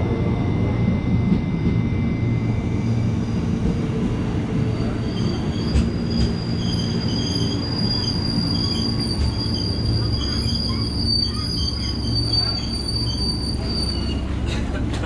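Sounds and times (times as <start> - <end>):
train rumbling on rails: 0.0 - 15.0
high-pitched wheel squeal: 4.7 - 14.3.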